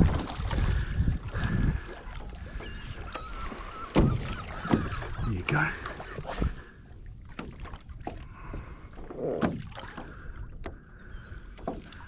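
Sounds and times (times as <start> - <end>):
wind on microphone: 0.0 - 5.3
water slapping against kayak hull: 0.0 - 12.0.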